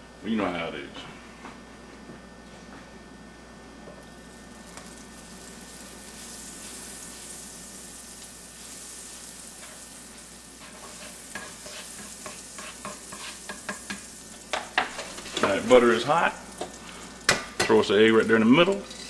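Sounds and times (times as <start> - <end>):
butter crackling and popping: 4.1 - 18.4
butter sizzling in skillet: 4.1 - 19.0
spatula pushing in pan: 8.6 - 15.6.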